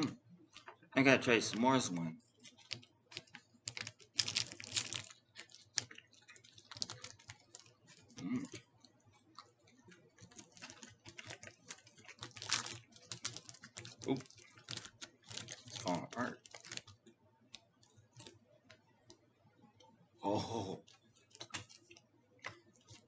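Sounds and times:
plastic wrapper crinkling: 2.4 - 8.7, 9.3 - 17.1, 17.8 - 18.4, 20.9 - 23.0.

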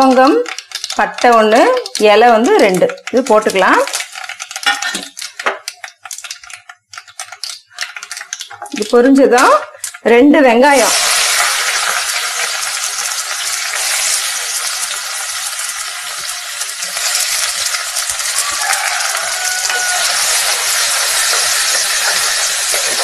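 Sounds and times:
onions sizzling in hot oil: 0.0 - 23.0
wooden spatula scraping and knocking: 20.0 - 23.0.

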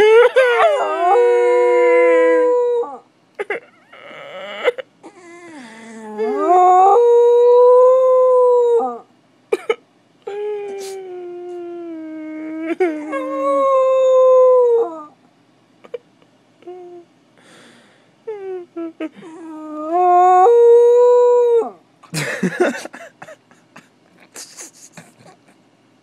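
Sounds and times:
puppy howling: 0.0 - 3.0, 5.2 - 9.1, 11.9 - 15.2, 19.3 - 21.8.

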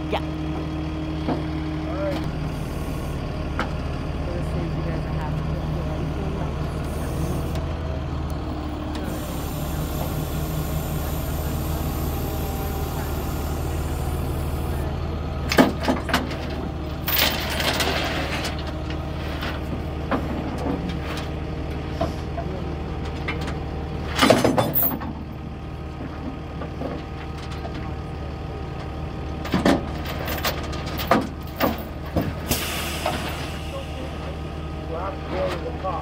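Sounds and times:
truck engine idling: 0.0 - 36.0
chain clanking on metal: 16.3 - 18.6, 24.2 - 25.1, 29.5 - 31.9.

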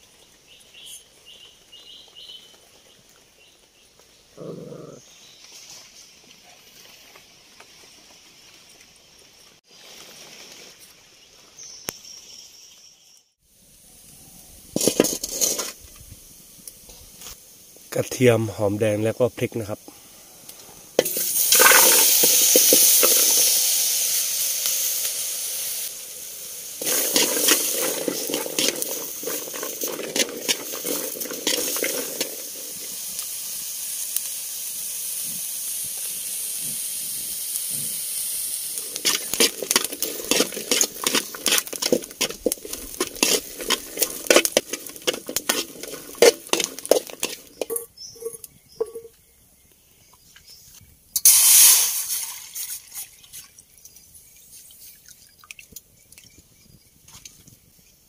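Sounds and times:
vegetables sizzling in pan: 13.5 - 17.9, 20.5 - 49.0, 51.2 - 52.7
spatula scraping pan: 14.8 - 15.8, 21.0 - 23.5, 26.8 - 33.0, 38.8 - 49.1.

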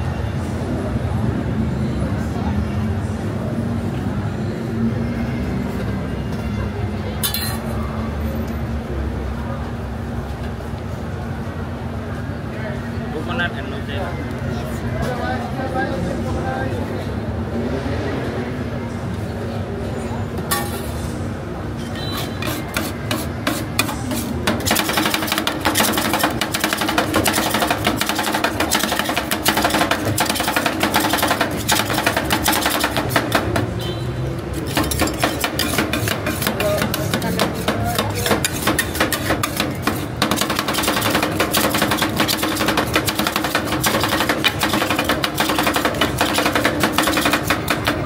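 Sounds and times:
metal spatulas clacking on steel: 21.9 - 33.7, 34.5 - 48.0.

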